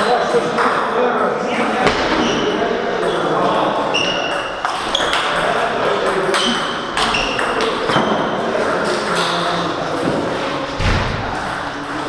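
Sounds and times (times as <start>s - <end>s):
table tennis balls clicking: 4.2s - 10.3s.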